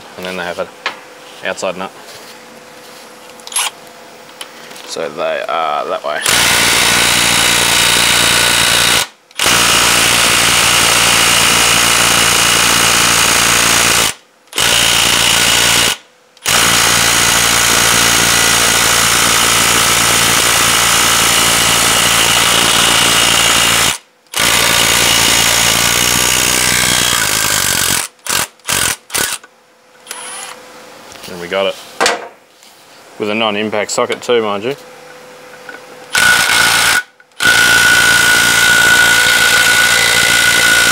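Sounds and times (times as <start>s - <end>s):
impact wrench hammering: 32.0s - 32.4s.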